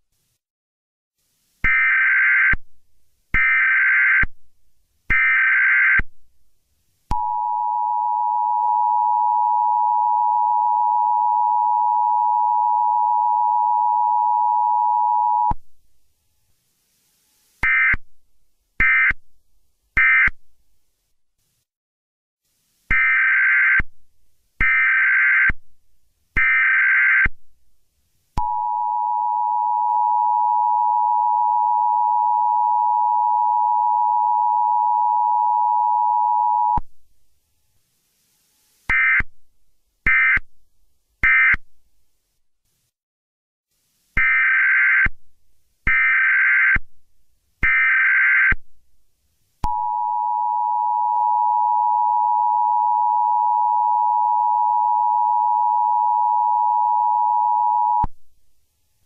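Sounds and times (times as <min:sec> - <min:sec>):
long steady electronic tone: 0:07.1 - 0:15.5, 0:28.4 - 0:36.8, 0:49.6 - 0:58.1
short high-pitched beeps: 0:49.7 - 0:58.1.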